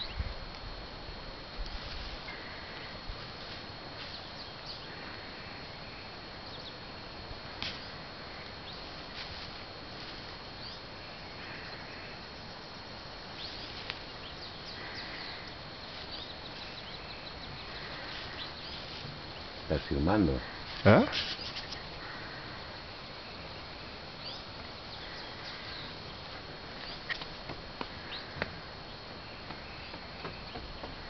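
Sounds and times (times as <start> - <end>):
background hiss: 0.0 - 31.0
high insect tone: 0.0 - 31.0
bird chirps: 24.2 - 26.2.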